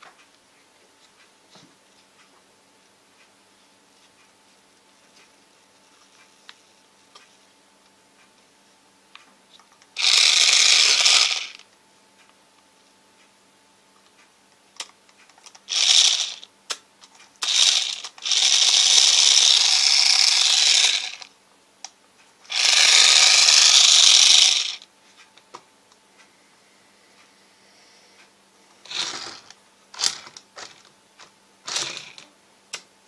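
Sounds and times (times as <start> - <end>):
toy car motor whirring: 10.0 - 11.6, 15.7 - 16.5, 17.4 - 21.3, 22.5 - 24.8, 28.9 - 30.3, 31.7 - 32.2.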